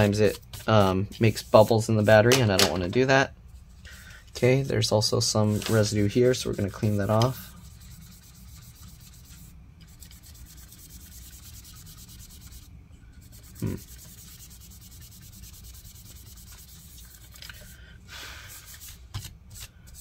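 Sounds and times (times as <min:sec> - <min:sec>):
cloth rubbing on plastic: 0:05.5 - 0:17.3.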